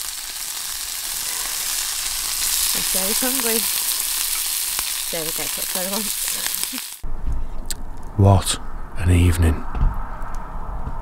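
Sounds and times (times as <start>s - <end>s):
sausages sizzling in a pan: 0.0s - 7.0s.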